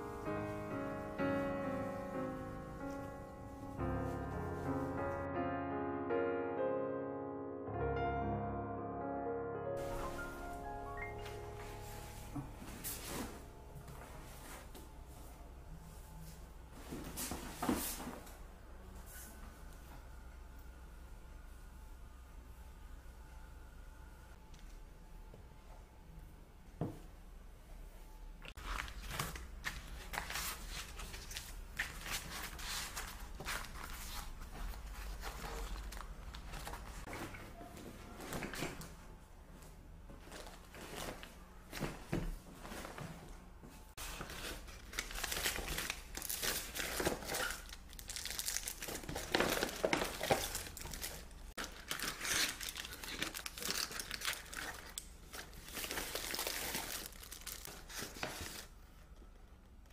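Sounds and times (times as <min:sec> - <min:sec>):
bags rustling and crinkling: 0:28.6 - 0:39.0, 0:40.1 - 0:58.8.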